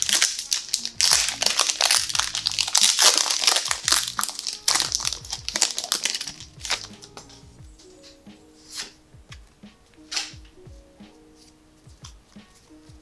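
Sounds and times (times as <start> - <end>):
foil wrapper crinkling: 0.0 - 7.2.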